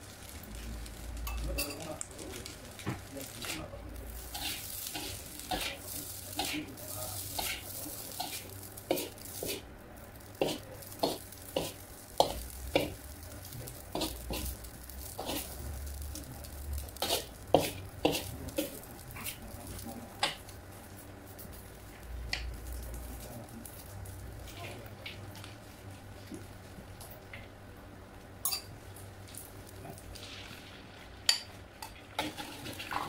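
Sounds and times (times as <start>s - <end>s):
faint sizzle: 0.0s - 33.0s
metal spatula scraping wok: 4.2s - 9.6s, 10.4s - 13.0s, 13.8s - 15.6s, 16.8s - 19.4s, 31.3s - 33.0s.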